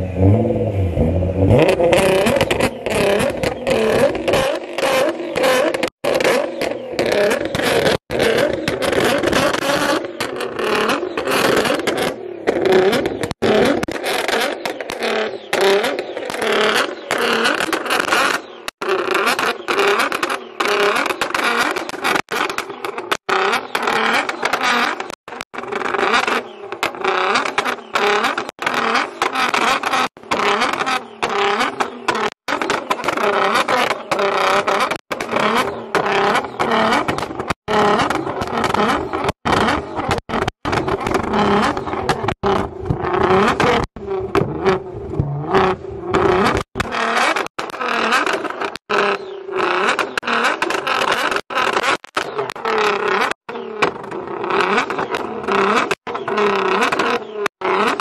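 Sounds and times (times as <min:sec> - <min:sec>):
car engine revving: 0:00.0 - 0:07.3.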